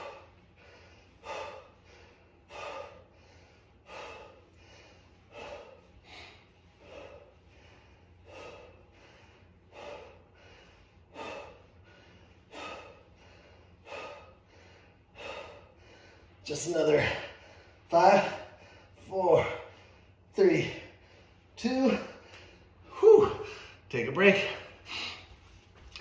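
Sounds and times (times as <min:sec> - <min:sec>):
man breathing out sharply: 0:00.0 - 0:16.4.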